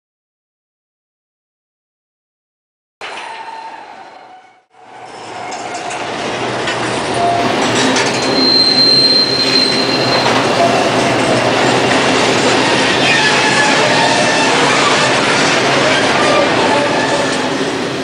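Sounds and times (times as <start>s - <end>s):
train running on rails: 3.0s - 18.0s
high wheel squeal: 3.1s - 6.0s, 7.0s - 17.9s.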